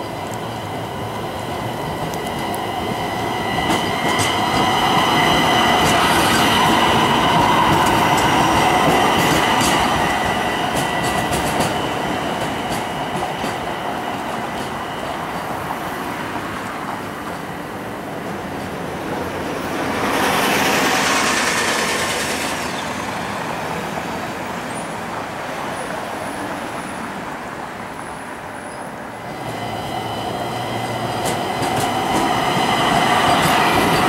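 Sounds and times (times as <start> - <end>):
light rail car passing: 0.0 - 34.0
wheels clicking over rail joints: 1.4 - 15.5, 29.3 - 34.0.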